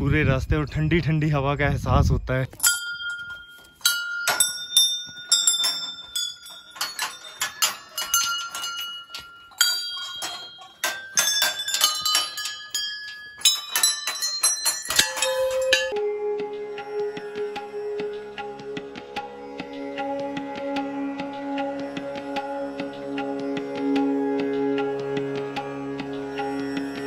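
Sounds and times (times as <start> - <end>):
brass bells clanging: 2.6 - 16.0.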